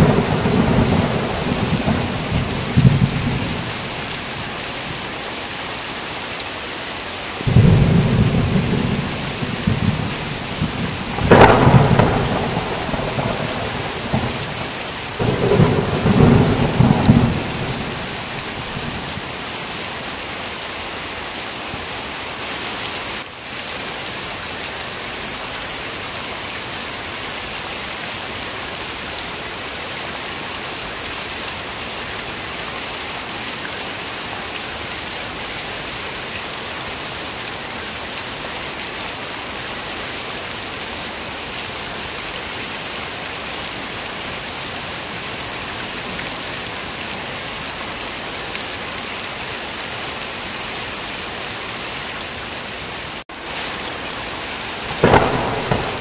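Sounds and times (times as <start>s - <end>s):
thunder rumble: 0.0s - 4.0s, 7.5s - 19.2s, 54.8s - 56.0s
heavy rain: 0.0s - 56.0s.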